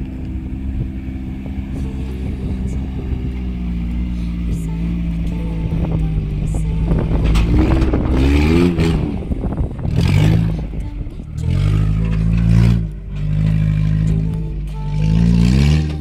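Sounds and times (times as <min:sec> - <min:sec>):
car engine revving under load: 0:00.0 - 0:16.0.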